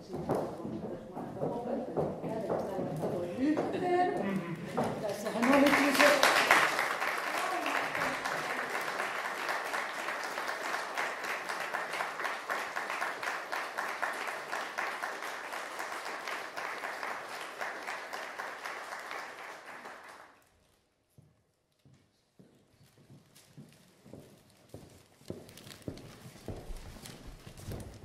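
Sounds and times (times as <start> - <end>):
audience applauding: 4.3 - 20.4.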